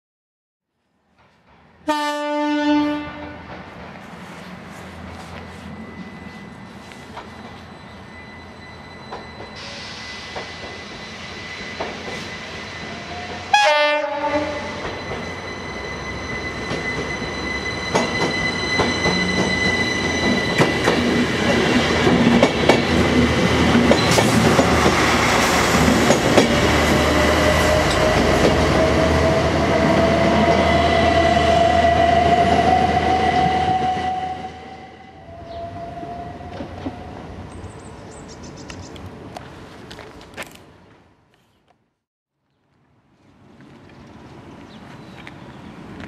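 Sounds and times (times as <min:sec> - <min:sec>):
train wheel and rail noise: 0:01.0 - 0:41.5, 0:42.8 - 0:46.0
train horn blast: 0:01.8 - 0:03.5, 0:13.0 - 0:14.9, 0:29.7 - 0:37.1.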